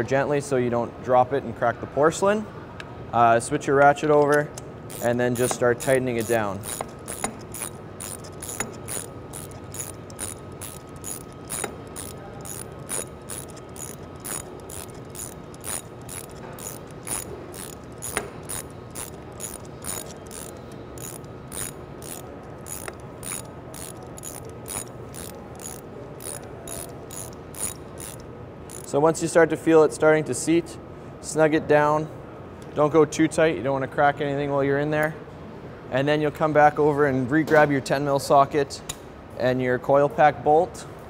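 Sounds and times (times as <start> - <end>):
ratchet clicking: 4.3 - 29.0.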